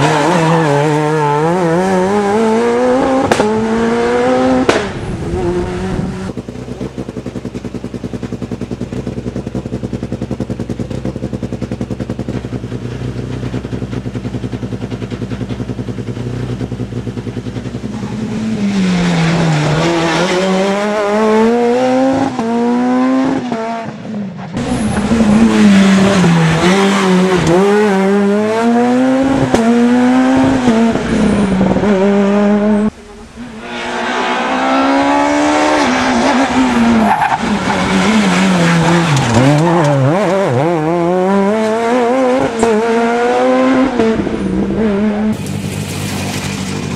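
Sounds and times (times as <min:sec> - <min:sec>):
rally cars revving past: 0:00.0 - 0:06.4, 0:17.9 - 0:24.0, 0:24.6 - 0:45.5
rally car engine idling: 0:06.3 - 0:18.2.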